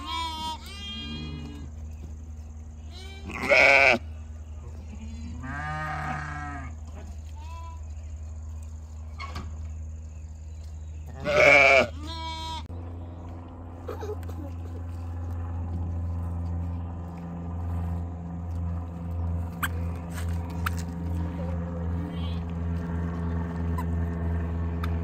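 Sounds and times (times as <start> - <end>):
sheep bleating: 0.0 - 1.7, 2.9 - 4.1, 4.8 - 7.9, 11.1 - 12.7, 21.1 - 22.5.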